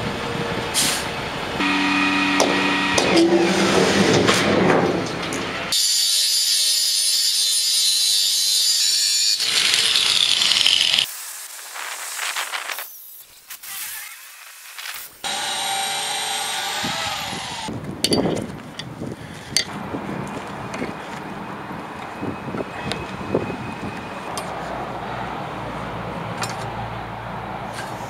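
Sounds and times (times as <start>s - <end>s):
angle grinder cutting steel: 1.6s - 4.1s, 5.7s - 11.1s, 15.0s - 17.7s
power tool whining: 1.6s - 4.1s, 9.3s - 11.1s, 15.2s - 17.7s.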